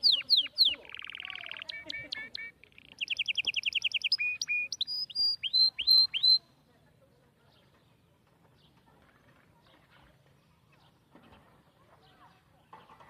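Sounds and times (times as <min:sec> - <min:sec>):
bird singing: 0:00.0 - 0:06.6.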